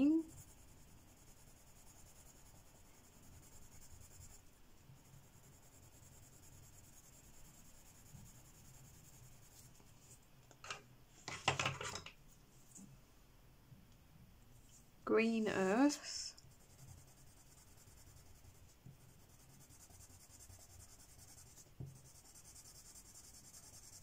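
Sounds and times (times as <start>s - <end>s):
pencil scratching on paper: 0.0s - 10.2s, 16.3s - 24.0s
pencil clattering down: 10.5s - 12.2s.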